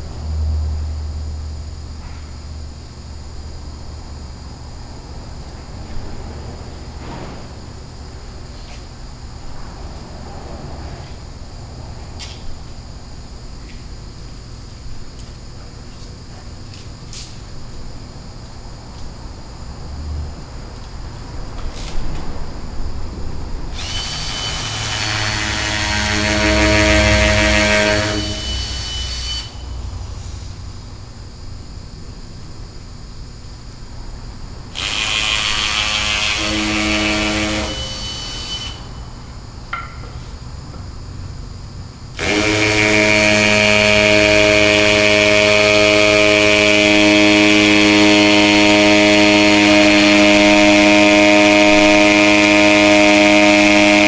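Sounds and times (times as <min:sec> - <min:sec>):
power drill drilling into brick: 0:23.8 - 0:26.9, 0:42.2 - 0:43.6.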